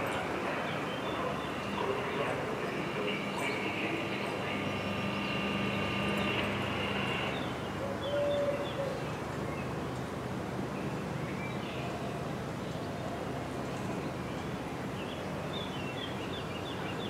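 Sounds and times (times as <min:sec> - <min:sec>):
level-crossing warning bells: 0:00.0 - 0:08.4
street background noise: 0:00.0 - 0:17.0.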